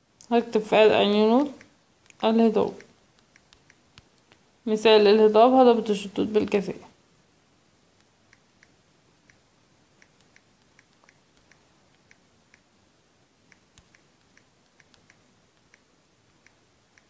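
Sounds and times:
low hiss: 0:00.0 - 0:17.0
typing taps on smartphone: 0:01.4 - 0:04.4, 0:10.0 - 0:12.7, 0:13.5 - 0:17.0.

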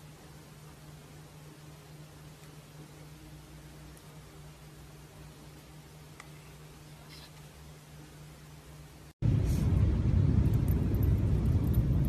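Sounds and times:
faint steady hiss: 0:00.0 - 0:12.0
low hum: 0:07.8 - 0:12.0.

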